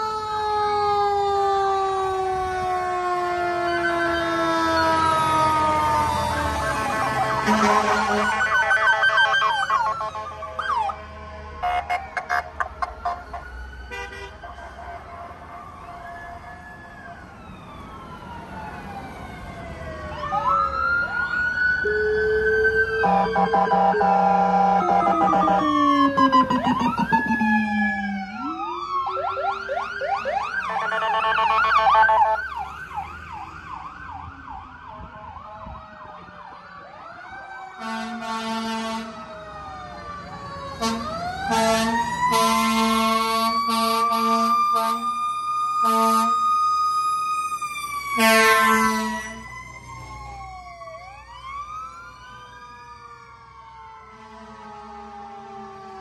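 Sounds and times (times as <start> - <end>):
fire truck sirens wailing: 0.0 - 56.0
loud horn blasts: 7.3 - 8.6, 13.9 - 15.4, 23.0 - 25.6, 30.6 - 32.3, 37.8 - 39.2, 40.8 - 45.1, 45.8 - 46.4, 48.2 - 49.4.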